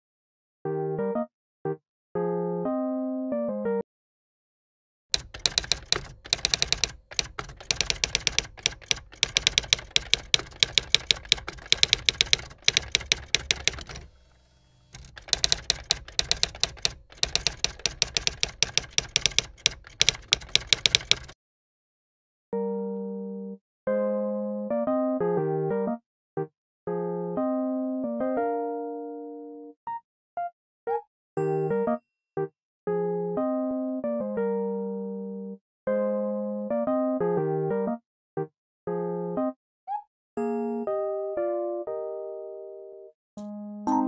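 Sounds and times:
electric piano music: 0:00.7 - 0:01.8, 0:02.5 - 0:03.8, 0:22.6 - 0:26.0, 0:26.9 - 0:29.8, 0:33.2 - 0:38.0, 0:40.8 - 0:42.6, 0:43.4 - 0:44.0
typewriter key clacks: 0:05.2 - 0:14.1, 0:15.0 - 0:21.4.

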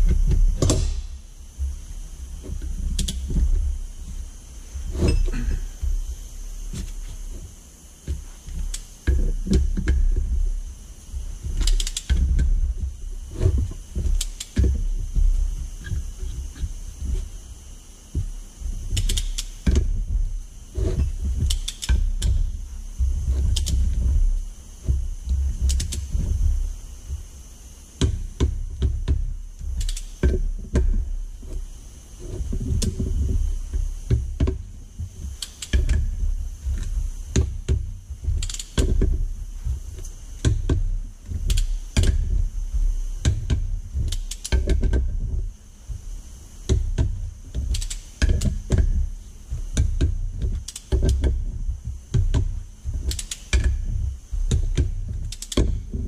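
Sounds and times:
socket wrench ratchet clicking: 0:11.6 - 0:12.2, 0:19.0 - 0:19.8, 0:20.8 - 0:22.4, 0:29.7 - 0:30.3, 0:35.4 - 0:36.0, 0:38.4 - 0:38.9, 0:41.5 - 0:42.2, 0:44.1 - 0:44.9, 0:47.7 - 0:48.8, 0:50.6 - 0:51.3, 0:53.1 - 0:53.7, 0:55.3 - 0:55.7.

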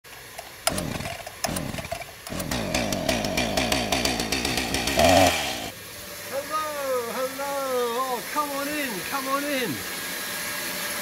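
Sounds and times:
power saw running: 0:00.2 - 0:05.8.

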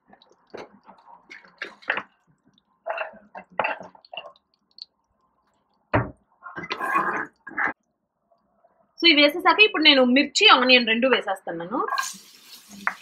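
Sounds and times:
spices crackling in hot oil: 0:11.9 - 0:13.0.

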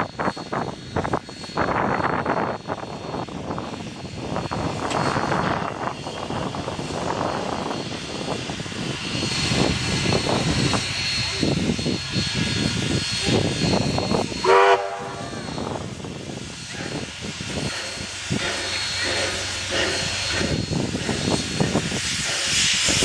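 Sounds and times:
steam hissing: 0:00.0 - 0:23.0
steam locomotive whistle blast: 0:14.3 - 0:15.6.

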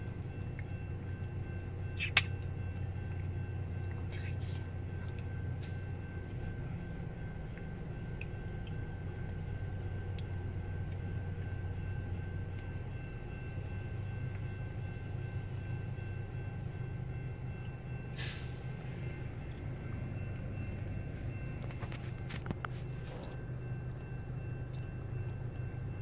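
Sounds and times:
locomotive rumbling: 0:00.0 - 0:26.0.

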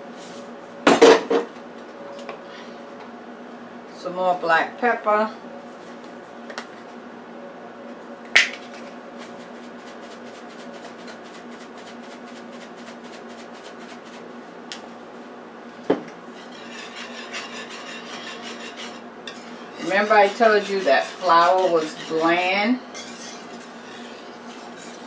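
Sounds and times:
whisk scraping metal skillet: 0:09.2 - 0:14.2, 0:16.3 - 0:25.0.

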